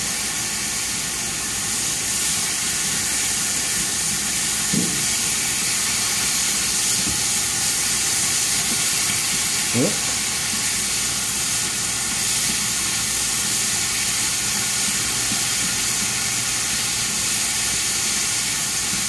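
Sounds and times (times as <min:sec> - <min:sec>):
sausage sizzling in a skillet: 0:00.0 - 0:19.0.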